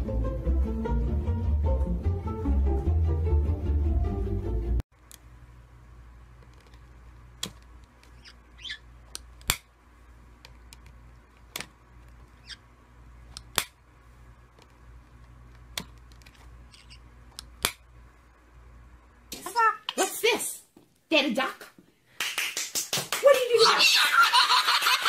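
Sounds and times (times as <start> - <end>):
parrot squeaks: 8.1 - 8.9, 12.4 - 12.6.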